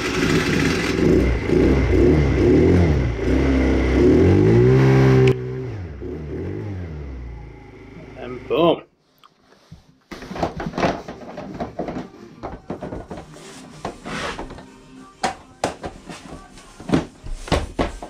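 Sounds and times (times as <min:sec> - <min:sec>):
scooter engine revving: 0:00.0 - 0:08.5.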